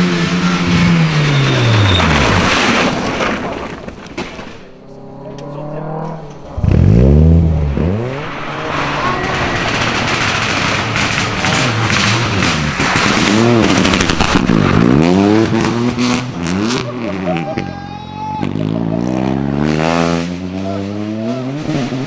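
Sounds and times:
engine crackles: 0.0 - 17.7
rally car engines revving: 0.0 - 22.0.

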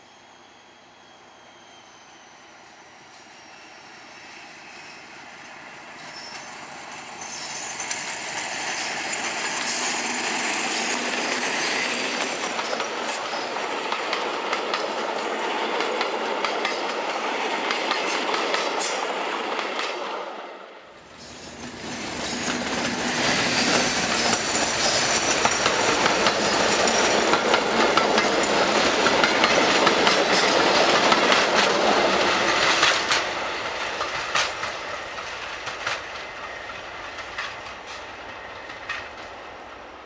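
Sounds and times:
high wheel squeal: 0.0 - 13.7, 21.2 - 30.6
diesel locomotive passing: 0.0 - 40.0.

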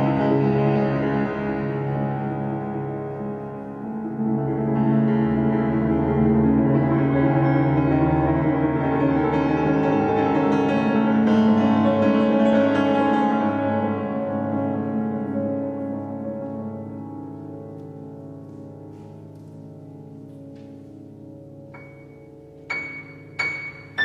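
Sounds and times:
grand piano playing sustained chords: 0.0 - 24.0.

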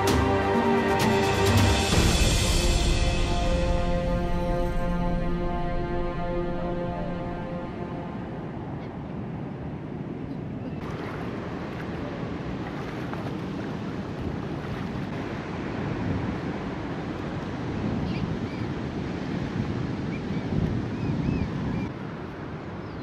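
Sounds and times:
shallow river water rushing: 0.0 - 21.2
wind buffeting microphone: 8.2 - 23.0.

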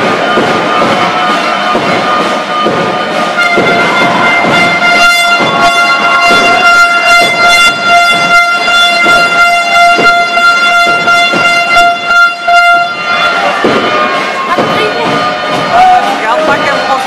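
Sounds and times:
arena horn long note: 3.4 - 17.0.

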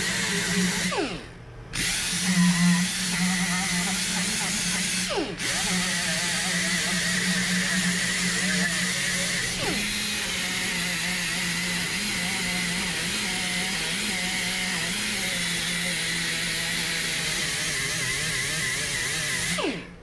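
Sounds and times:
air die grinder scrubbing metal: 1.8 - 19.6.

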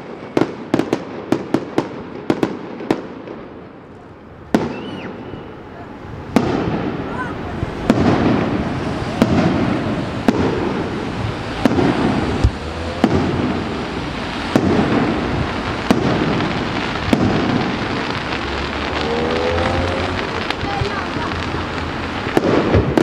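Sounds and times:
fireworks bangs: 0.0 - 23.0.

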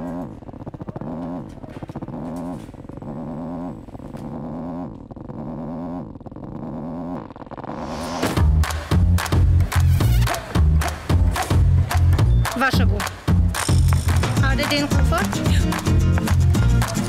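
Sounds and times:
vibrator buzzing in pulses: 0.0 - 12.5.

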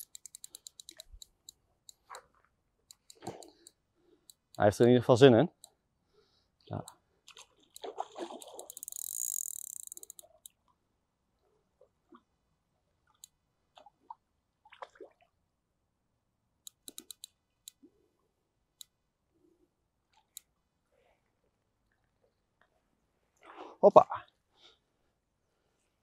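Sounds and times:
fishing reel drag clicking: 0.0 - 2.2, 2.9 - 4.6, 7.7 - 10.5, 16.7 - 17.8.

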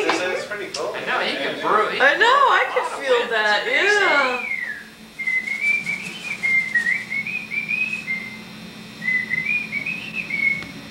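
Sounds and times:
person whistling: 4.4 - 8.4, 9.0 - 10.7.

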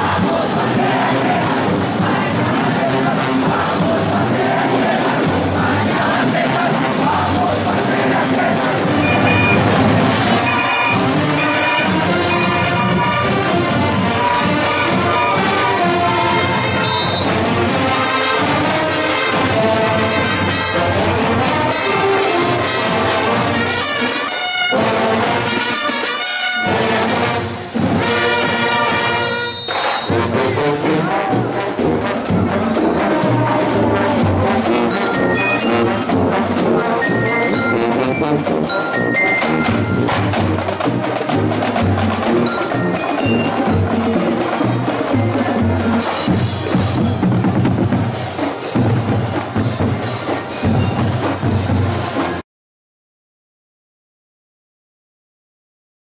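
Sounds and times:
marching band brass: 0.0 - 52.4
marching drums: 0.0 - 52.4.

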